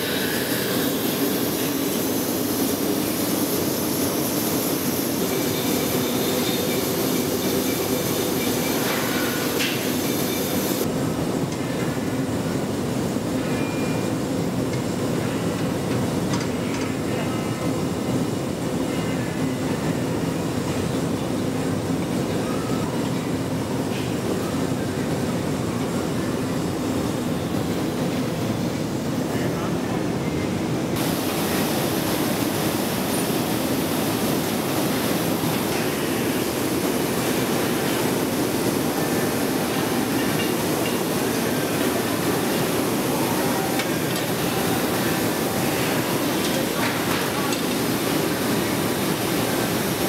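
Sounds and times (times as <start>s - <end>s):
furnace and machinery roar: 0.0s - 50.0s
high hiss: 31.0s - 50.0s.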